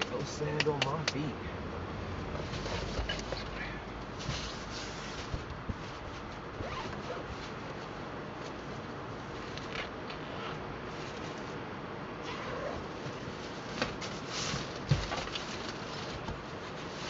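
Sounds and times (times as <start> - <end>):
zipper pulled: 6.6 - 7.3, 9.4 - 10.6, 12.2 - 13.0.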